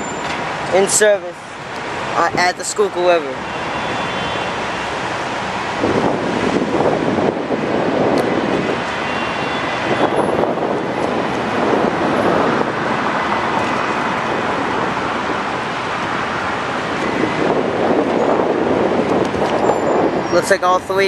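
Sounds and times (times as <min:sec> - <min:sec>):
city traffic roar: 0:00.0 - 0:21.0
wind buffeting microphone: 0:05.1 - 0:21.0.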